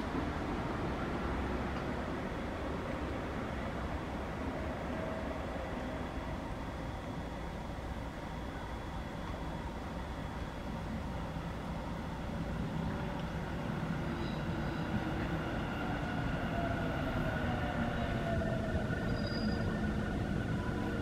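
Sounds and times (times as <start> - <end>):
train rumble braking: 11.8 - 21.0.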